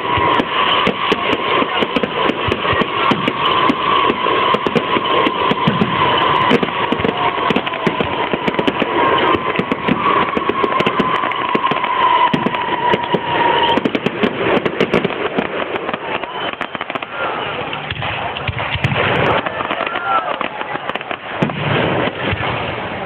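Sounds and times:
fireworks crackling and banging: 0.0s - 23.0s
high whistle dropping in pitch: 3.2s - 14.0s.

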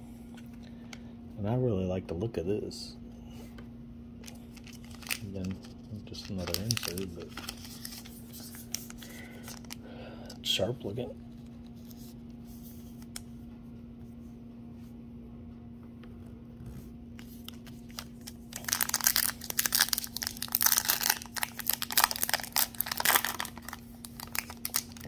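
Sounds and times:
low steady hum: 0.0s - 25.0s
foil wrapper tearing and crinkling: 4.2s - 9.8s, 17.2s - 25.0s.

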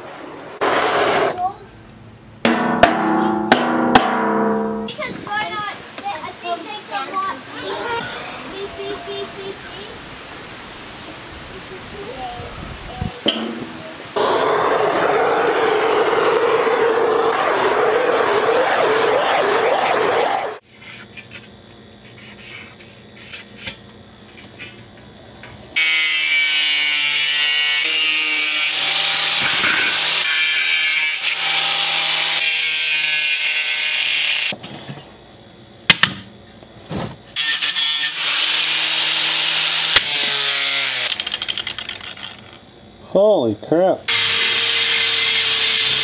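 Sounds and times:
angle grinder cutting sheet steel: 13.3s - 20.6s, 25.8s - 34.5s, 37.4s - 41.2s, 44.1s - 46.0s.

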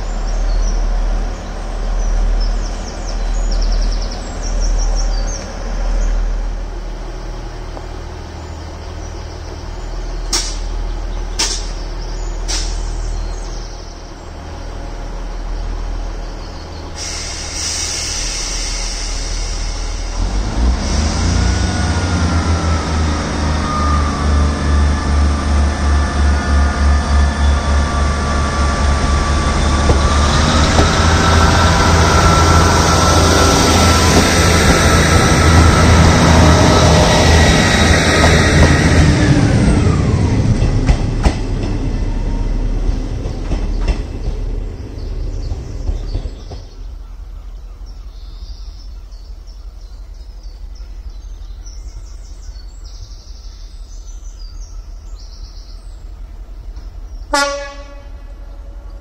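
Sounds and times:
diesel train engines throbbing: 0.0s - 59.0s
train whine: 0.0s - 59.0s
air hissing: 16.9s - 21.2s.

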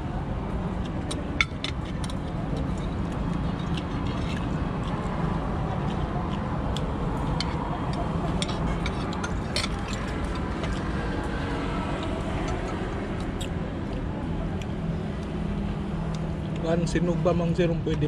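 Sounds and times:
utensils clinking on plates: 7.4s - 10.8s.

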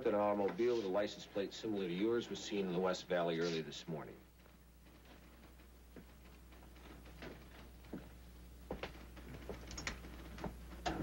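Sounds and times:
footsteps on office floor: 4.5s - 9.7s.

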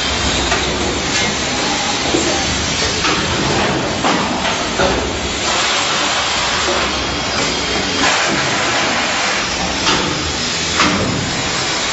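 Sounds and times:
steady loud hiss: 0.0s - 11.9s.

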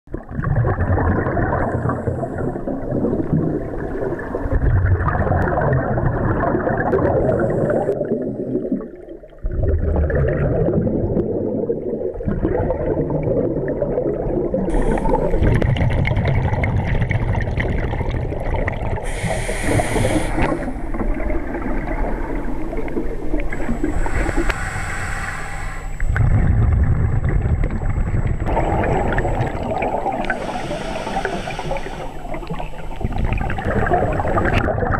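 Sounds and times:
underwater exhaled air bubbling: 0.1s - 34.9s
regulator short hisses: 14.7s - 15.4s, 19.1s - 20.8s, 23.6s - 26.2s, 30.3s - 32.9s.

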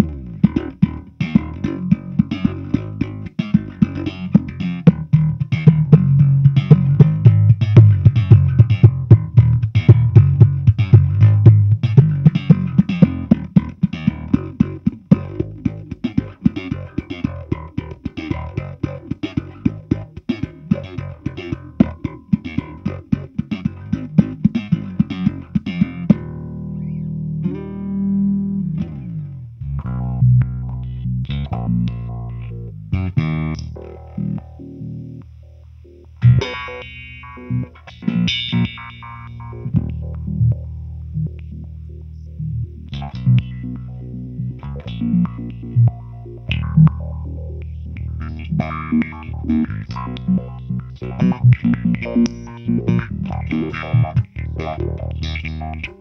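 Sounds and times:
electric bass with filter sweep: 0.0s - 56.0s.

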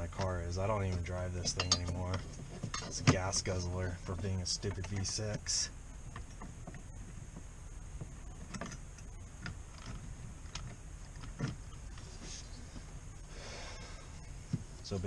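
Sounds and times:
low hum: 0.0s - 15.0s
light clicks and taps: 4.1s - 12.0s.

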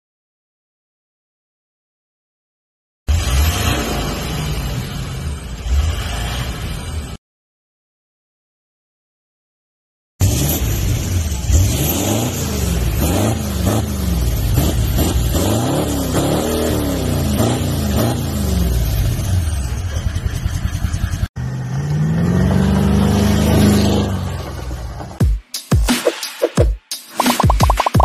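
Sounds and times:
diesel engine revving: 3.1s - 7.2s, 10.2s - 25.2s
vehicle pulling away: 3.1s - 7.2s, 10.2s - 25.2s.

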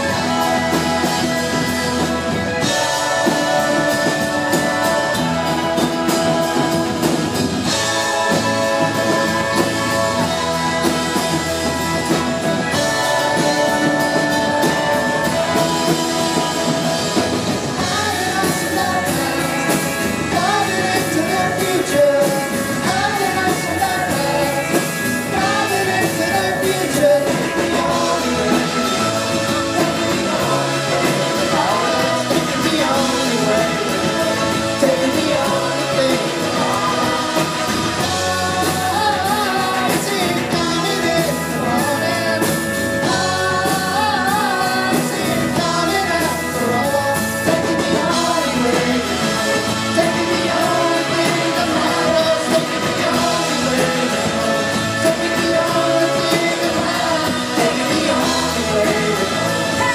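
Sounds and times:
live rock band playing: 0.0s - 59.9s
woman singing: 25.4s - 59.9s.

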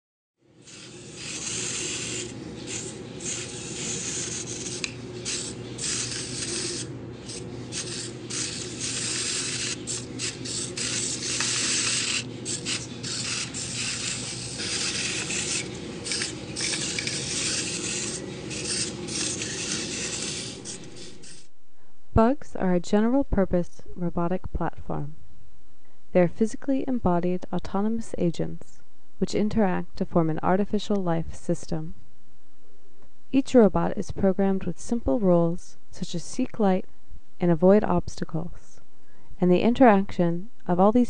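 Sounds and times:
scratchy hissing noise: 0.6s - 21.5s.

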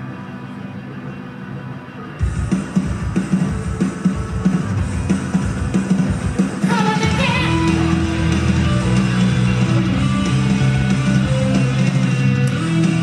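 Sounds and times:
rock backing track: 2.1s - 13.0s.

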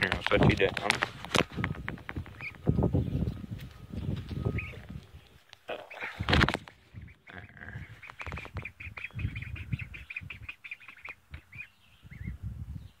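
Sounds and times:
rustling handling noise: 0.0s - 2.7s
ducklings peeping: 0.1s - 13.0s.

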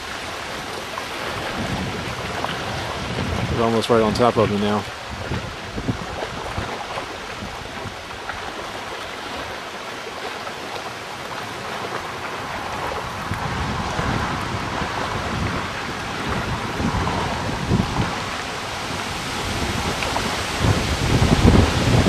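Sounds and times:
gusty wind buffeting microphone: 0.0s - 9.6s, 11.3s - 22.0s
low thunder rumbles: 1.2s - 4.4s, 12.6s - 22.0s.

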